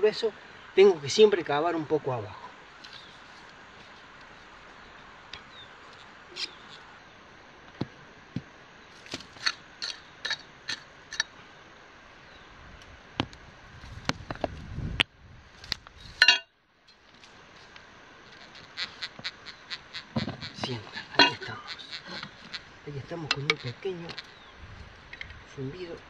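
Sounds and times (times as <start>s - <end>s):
rough scraping: 18.3s - 24.4s.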